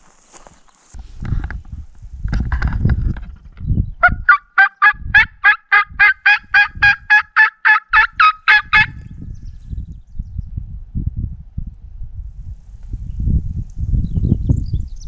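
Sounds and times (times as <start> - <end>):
turkey mouth call yelps: 4.0 - 9.0.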